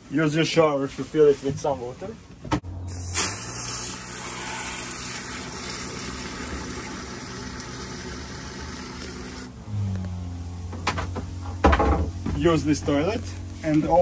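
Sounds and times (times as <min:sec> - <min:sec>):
shower head spraying water: 0:02.9 - 0:09.5.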